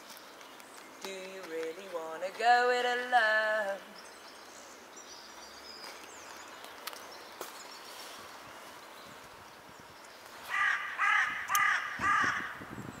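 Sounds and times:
faint outdoor background noise: 0.0s - 13.0s
crow cawing: 10.5s - 12.6s.

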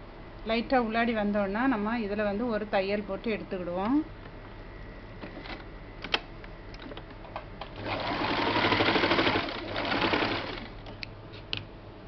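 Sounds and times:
sewing machine stitching: 7.8s - 10.7s.

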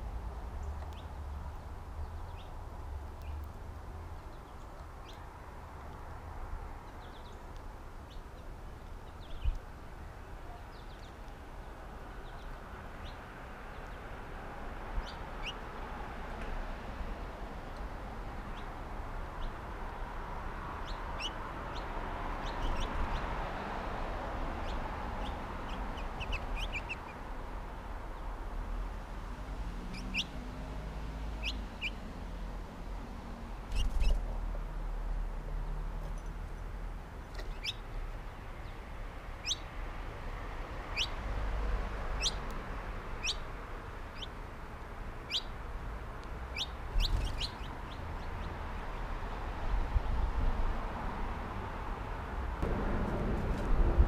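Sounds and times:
small songbirds chirping: 0.5s - 16.0s, 17.7s - 32.5s, 33.5s - 34.4s, 35.6s - 39.8s, 40.7s - 49.2s
low bump: 52.6s - 54.0s.

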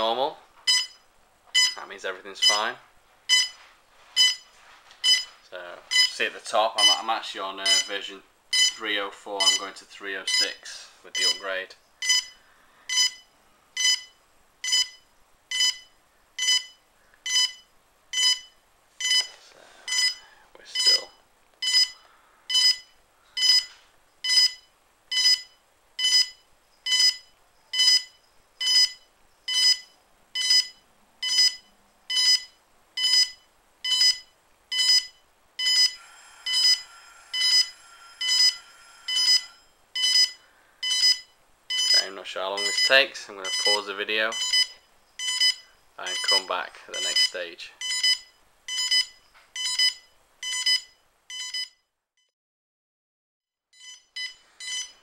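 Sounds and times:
short high beeps: 25.2s - 51.8s.

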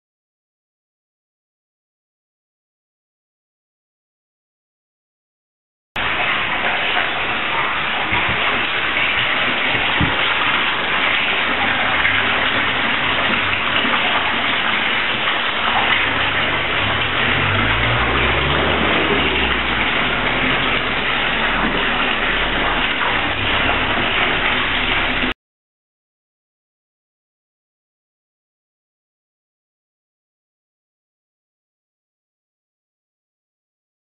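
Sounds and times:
water pouring into a bath: 6.0s - 25.4s
low rumble: 16.0s - 25.3s.

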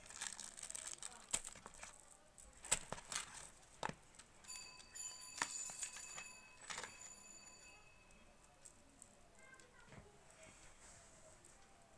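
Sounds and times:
plastic packaging rustling: 0.0s - 4.3s.

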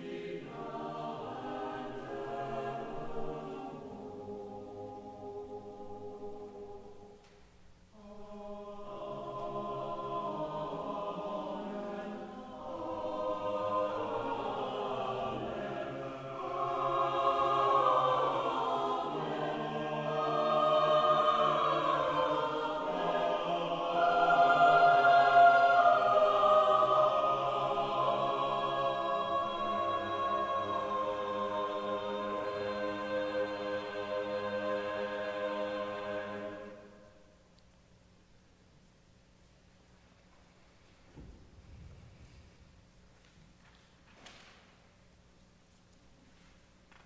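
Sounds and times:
church choir singing: 0.0s - 37.5s.

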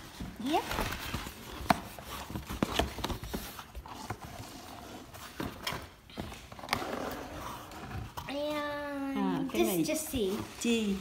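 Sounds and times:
cardboard boxes tapping and scraping: 0.0s - 8.7s.

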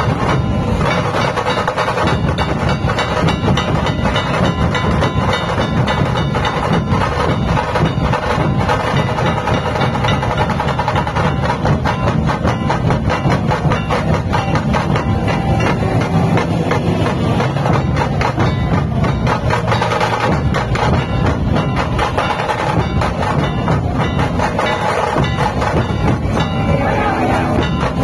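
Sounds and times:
dhol drums beaten with sticks: 0.0s - 28.0s.

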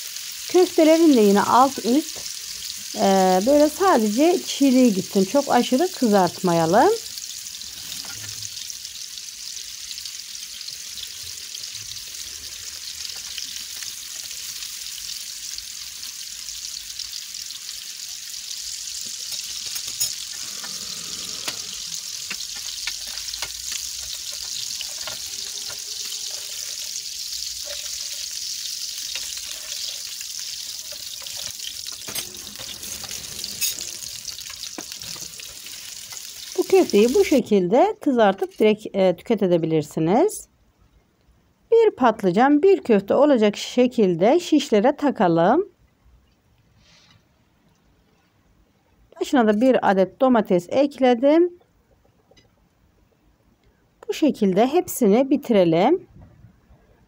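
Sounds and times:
meat sizzling in oil: 0.0s - 37.5s.

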